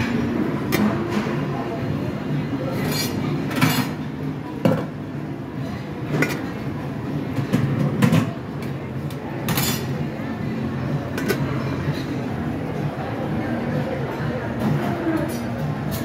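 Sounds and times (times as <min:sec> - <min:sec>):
background hubbub: 0:00.0 - 0:16.0
metal lids and dishes clinking: 0:02.8 - 0:04.0, 0:09.4 - 0:10.0.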